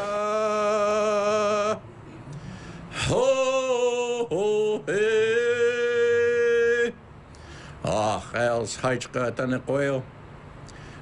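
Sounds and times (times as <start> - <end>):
man singing long held notes: 0.0 - 2.0, 2.8 - 7.0.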